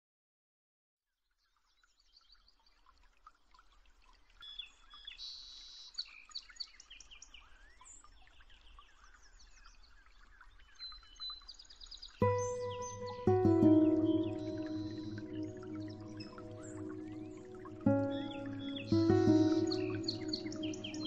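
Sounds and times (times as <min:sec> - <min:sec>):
birds chirping and trilling: 0:12.2 - 0:21.0.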